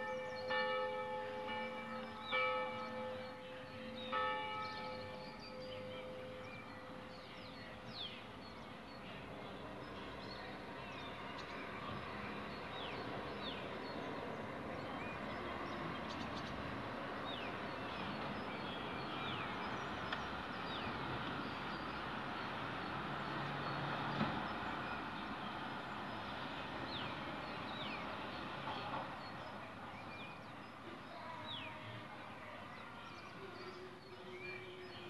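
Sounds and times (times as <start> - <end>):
church bell: 0.0 - 11.2
birds chirping: 0.0 - 35.0.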